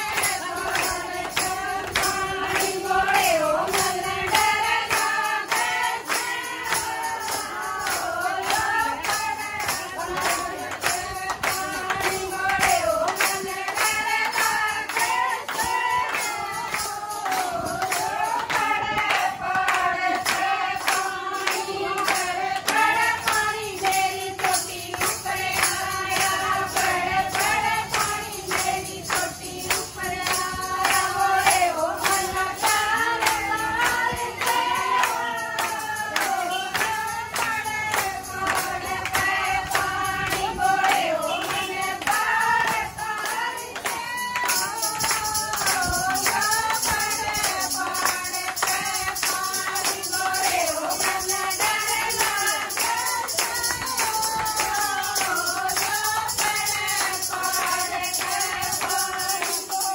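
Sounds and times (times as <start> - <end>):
handclaps: 0.0 - 59.9
women singing together: 0.0 - 59.9.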